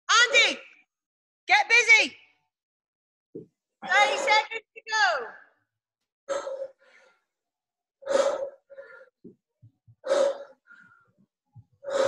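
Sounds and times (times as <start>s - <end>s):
soft breath: 8.0s - 9.4s, 10.0s - 12.0s.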